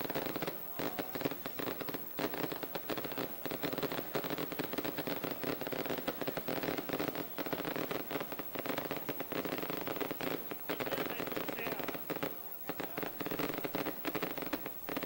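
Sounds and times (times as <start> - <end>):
fireworks crackling: 0.0 - 15.0.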